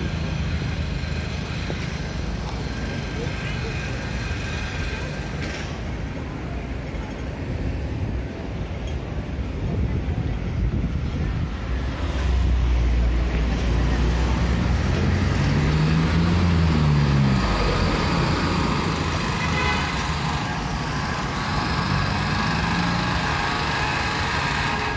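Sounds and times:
street traffic passing: 0.0 - 24.9
vehicle engine passing: 11.2 - 24.9.

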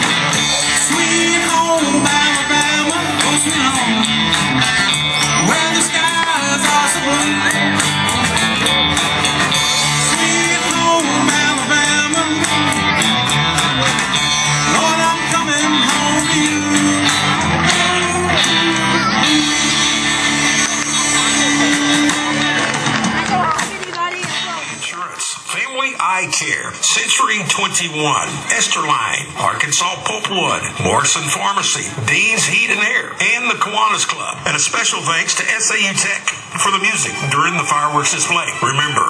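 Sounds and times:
person singing: 0.0 - 24.8
live rock band playing: 0.0 - 26.0
electric guitars: 0.0 - 26.1
drums: 0.0 - 39.0.

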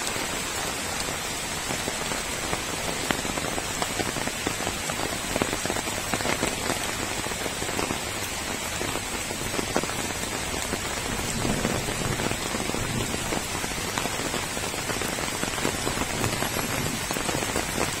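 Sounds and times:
rain falling on wet ground: 0.0 - 18.0.

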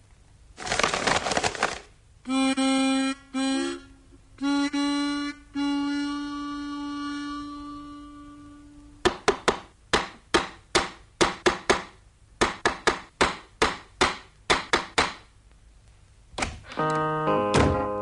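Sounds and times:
held harmonica note: 2.2 - 9.0
sharp wooden knocks: 9.0 - 15.3.

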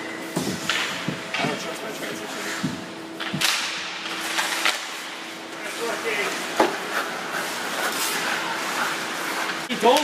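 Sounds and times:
hockey sticks and puck clacking: 3.2 - 10.0
skate blades scraping ice: 4.1 - 10.0.

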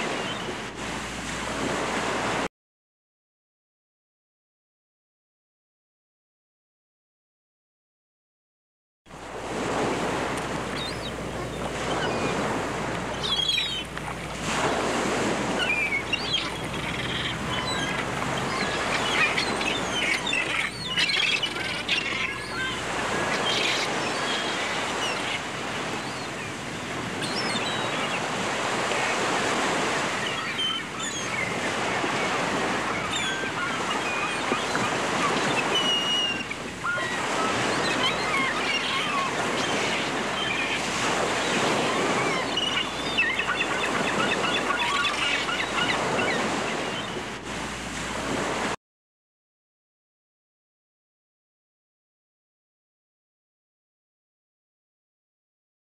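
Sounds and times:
ocean waves washing in: 0.0 - 2.5, 9.1 - 48.8
birds chirping and calling: 9.8 - 26.6, 27.2 - 47.2.

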